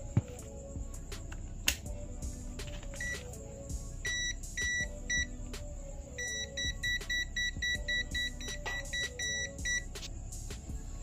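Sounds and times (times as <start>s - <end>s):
multimeter short high beeps: 6.2s - 9.9s.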